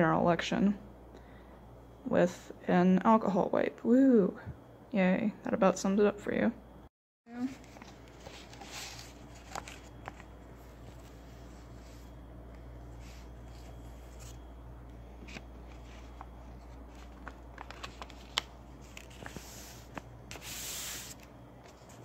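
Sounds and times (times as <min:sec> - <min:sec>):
low steady hum: 0:00.0 - 0:22.0
paper envelope rustle: 0:07.4 - 0:12.2, 0:15.2 - 0:22.0.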